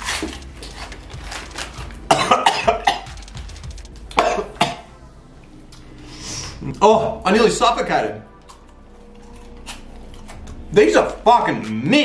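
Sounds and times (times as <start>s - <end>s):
man coughing and choking: 2.0s - 3.2s, 4.1s - 4.9s.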